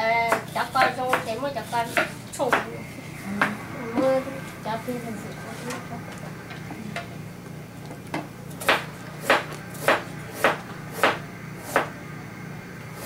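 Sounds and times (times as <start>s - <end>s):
knife chopping on cutting board: 0.3s - 1.3s, 1.9s - 2.7s, 8.6s - 11.9s.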